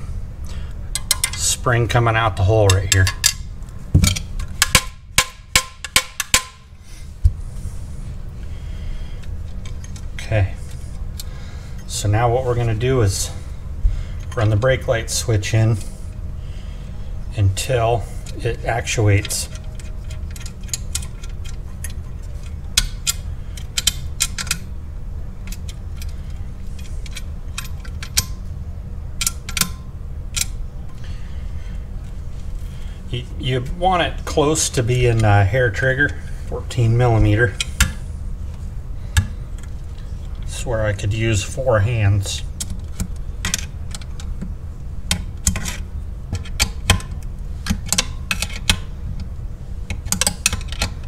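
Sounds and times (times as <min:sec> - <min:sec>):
steady low hum: 0:00.0 - 0:51.0
metal clicks and clinks: 0:00.9 - 0:01.4.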